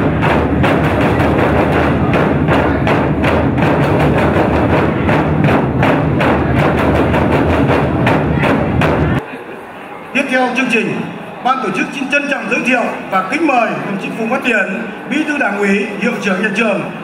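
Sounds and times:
festive drum music: 0:00.0 - 0:09.2.

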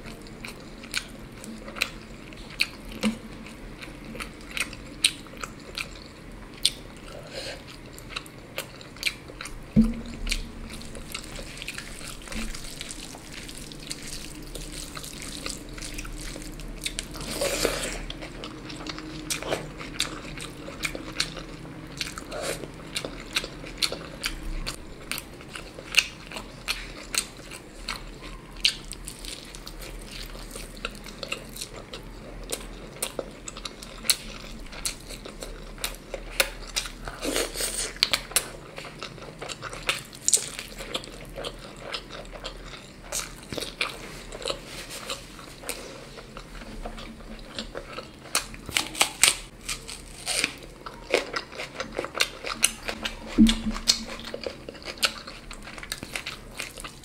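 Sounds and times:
person chewing crunchy food: 0:00.0 - 0:57.0
wet mouth clicks: 0:52.6 - 0:54.2.

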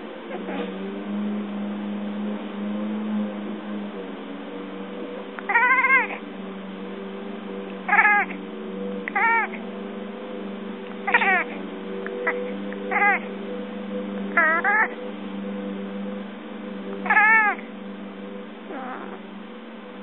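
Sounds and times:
steady low hum: 0:00.0 - 0:20.0
cat chirping: 0:05.5 - 0:06.2, 0:07.9 - 0:08.3, 0:09.1 - 0:09.6, 0:11.0 - 0:11.6, 0:12.2 - 0:13.2, 0:14.4 - 0:15.0, 0:17.0 - 0:17.6, 0:18.7 - 0:19.2.

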